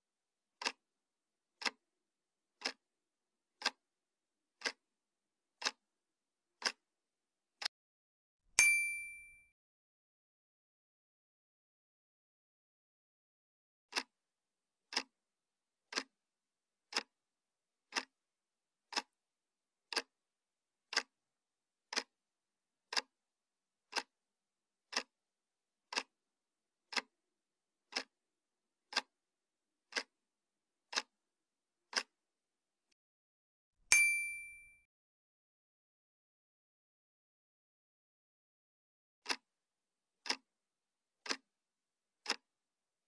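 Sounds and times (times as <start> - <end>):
clock ticking: 0.6 - 0.8, 1.6 - 1.8, 2.6 - 2.8, 3.6 - 3.9, 4.6 - 4.9, 5.6 - 5.9, 6.6 - 6.9, 13.9 - 14.2, 14.8 - 15.2, 15.9 - 16.2, 16.8 - 17.2, 17.9 - 18.2, 18.9 - 19.2, 19.9 - 20.2, 20.8 - 21.2, 21.8 - 22.2, 22.9 - 23.2, 23.9 - 24.2, 24.9 - 25.2, 25.9 - 26.2, 26.9 - 27.2, 27.9 - 28.2, 28.9 - 29.2, 29.9 - 30.2, 30.9 - 31.2, 31.9 - 32.2, 39.2 - 39.5, 40.2 - 40.5, 41.2 - 41.5, 42.2 - 42.5.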